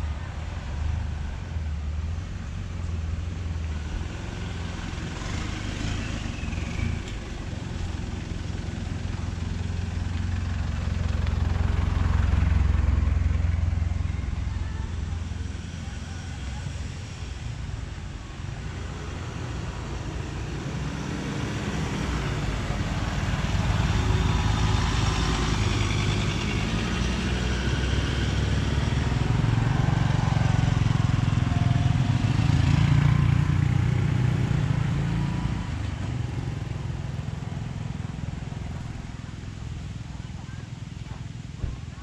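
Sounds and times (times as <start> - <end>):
vehicle engine rumbling: 0.0 - 42.0
faint voices: 13.0 - 18.6, 37.5 - 42.0.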